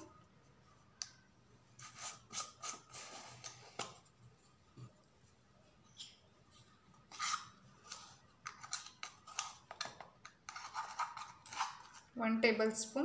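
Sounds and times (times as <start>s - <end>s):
plastic spoon scraping powder: 1.8s - 3.8s, 7.1s - 12.2s.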